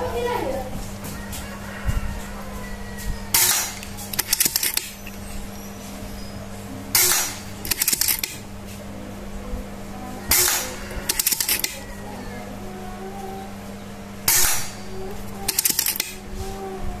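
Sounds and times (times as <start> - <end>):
air rifle shots: 3.4 - 5.0, 7.0 - 8.4, 10.3 - 11.8, 14.2 - 14.8
sharp metallic clicks: 3.4 - 5.2, 7.0 - 8.4, 10.3 - 11.8, 14.3 - 16.2.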